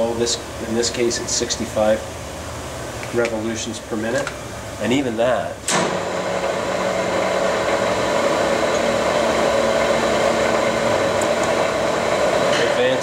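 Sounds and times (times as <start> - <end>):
lathe running: 5.7 - 13.0.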